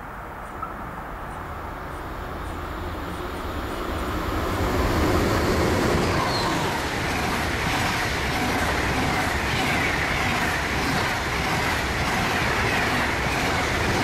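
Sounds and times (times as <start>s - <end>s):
train passing at speed: 0.0s - 14.0s.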